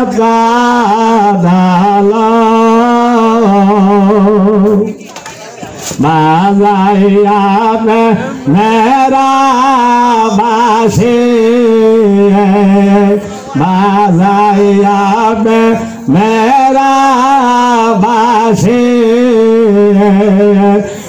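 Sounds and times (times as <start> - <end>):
man singing devotional song: 0.0 - 5.0, 5.6 - 21.0.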